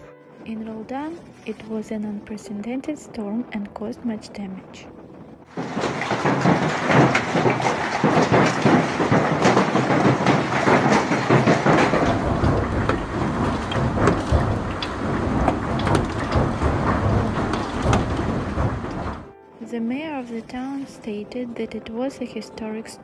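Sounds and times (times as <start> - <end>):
low rumble: 4.4 - 19.4
hail clattering: 5.4 - 19.3.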